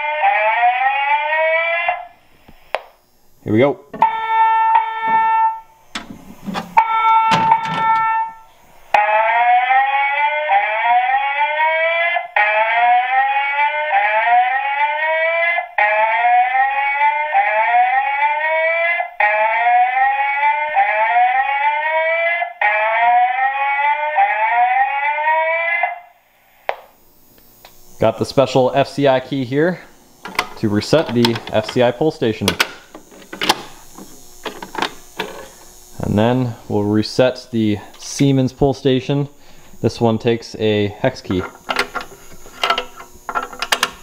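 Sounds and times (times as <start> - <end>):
rising alarm whoops: 0.0 - 2.2, 4.0 - 5.8, 6.8 - 26.2.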